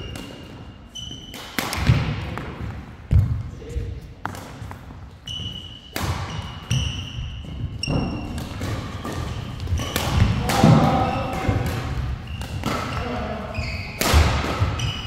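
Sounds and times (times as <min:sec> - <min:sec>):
shoes squeaking on court: 0:00.0 - 0:01.4, 0:05.1 - 0:10.4, 0:12.0 - 0:15.0
rackets striking shuttlecock: 0:00.0 - 0:02.5, 0:05.8 - 0:07.2, 0:07.8 - 0:13.2, 0:13.9 - 0:15.0.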